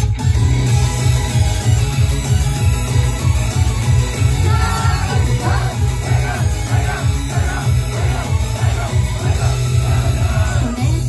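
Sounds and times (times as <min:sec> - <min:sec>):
pop backing track with heavy bass: 0:00.0 - 0:11.0
person singing: 0:04.4 - 0:11.0.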